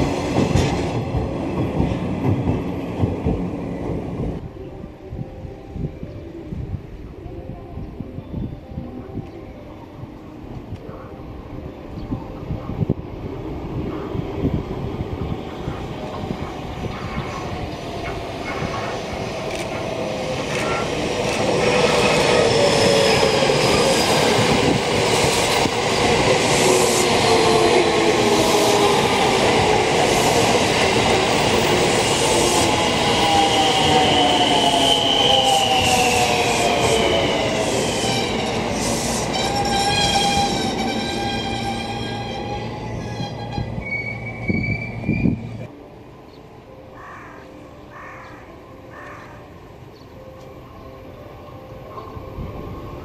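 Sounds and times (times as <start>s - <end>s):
train wheels rumbling on rails: 0.0s - 4.4s.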